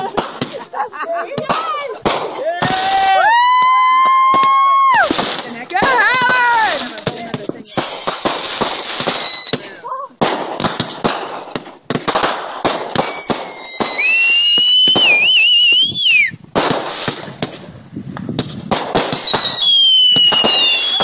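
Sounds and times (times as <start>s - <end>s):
fireworks cracks and bangs: 0.0s - 21.0s
high whistling fireworks: 0.0s - 21.0s.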